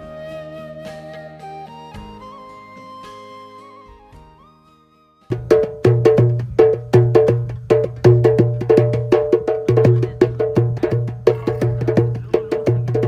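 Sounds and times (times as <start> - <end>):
hands drumming on a metal pot: 5.3 - 13.0.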